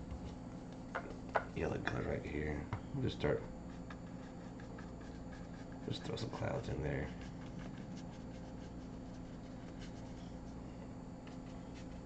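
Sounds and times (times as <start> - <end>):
paintbrush scratching on canvas: 3.7 - 10.6, 11.3 - 12.0.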